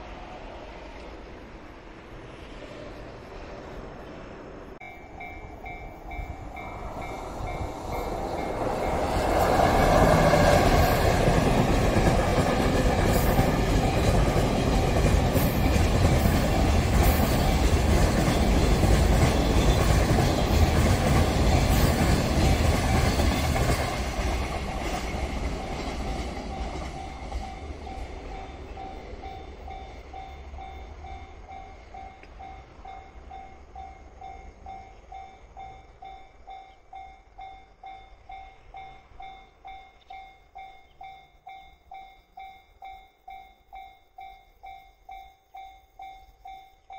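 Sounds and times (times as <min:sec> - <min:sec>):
crossing warning bell ringing: 0:04.8 - 0:46.9
train wheels clattering: 0:05.1 - 0:30.8.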